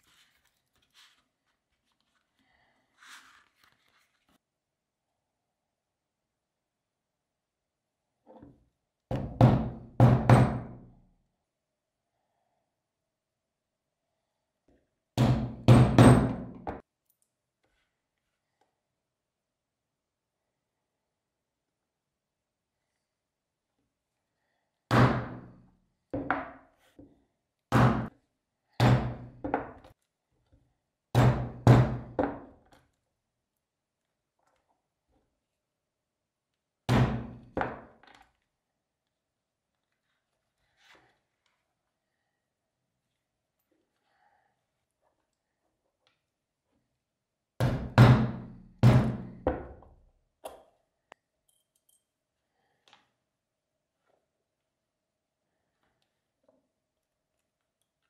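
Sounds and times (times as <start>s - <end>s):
faint clicks of metal parts: 17.0s - 18.7s, 50.4s - 53.2s.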